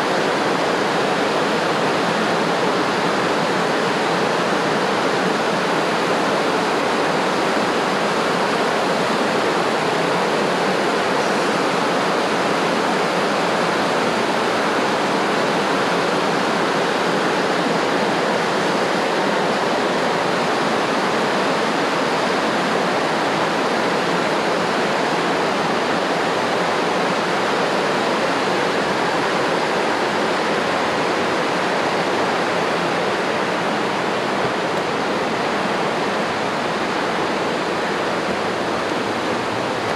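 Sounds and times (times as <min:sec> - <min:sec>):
flowing water rushing: 0:00.0 - 0:39.9.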